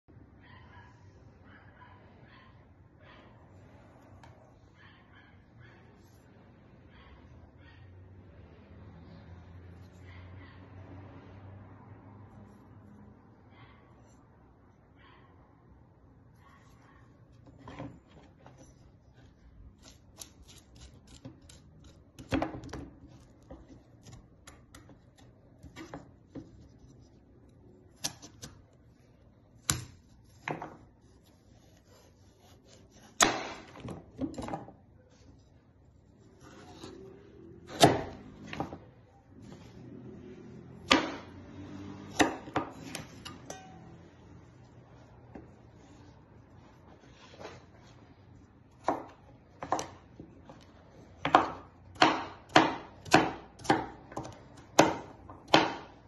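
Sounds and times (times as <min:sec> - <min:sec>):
knife slicing and scraping: 0:18.0 - 0:28.7, 0:29.6 - 0:33.8, 0:35.1 - 0:38.6, 0:41.6 - 0:48.0.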